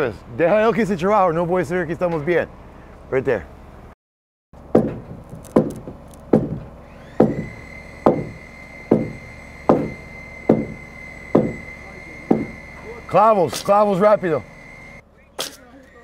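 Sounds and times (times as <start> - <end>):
sledgehammer striking timber beam: 4.7 - 12.6.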